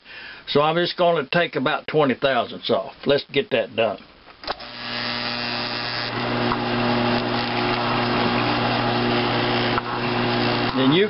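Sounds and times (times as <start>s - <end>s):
mill motor humming: 4.5s - 10.9s.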